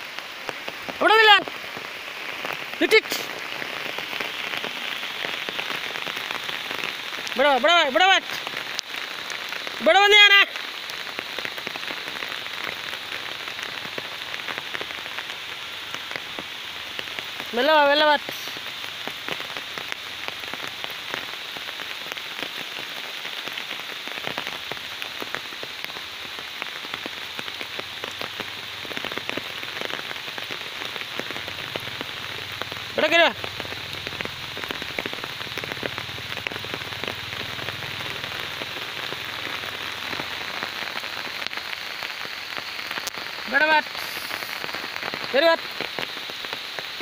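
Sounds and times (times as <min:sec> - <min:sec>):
steady rain falling: 0:00.0 - 0:47.0
person calling out: 0:01.0 - 0:01.5, 0:02.8 - 0:03.3, 0:07.4 - 0:08.4, 0:09.8 - 0:10.5, 0:17.5 - 0:18.5, 0:33.0 - 0:33.4, 0:43.5 - 0:44.5.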